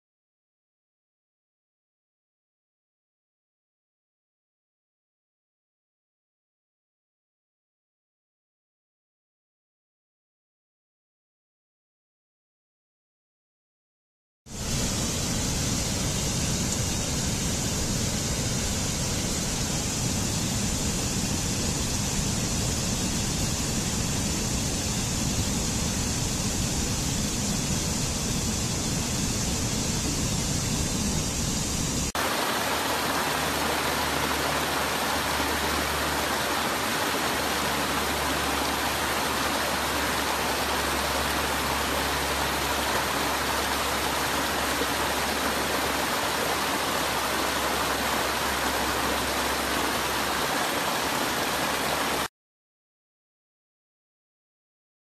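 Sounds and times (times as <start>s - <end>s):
stream rushing over rocks: 32.1s - 52.3s.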